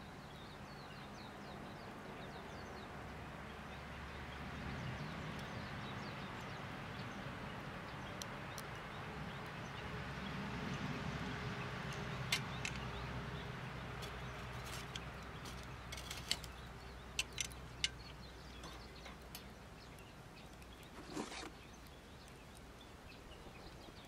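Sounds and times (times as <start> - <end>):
wood fire burning: 5.0 - 24.0
fire clicks and pops: 8.0 - 9.6, 14.0 - 22.7
short rustling scrape: 20.9 - 21.6.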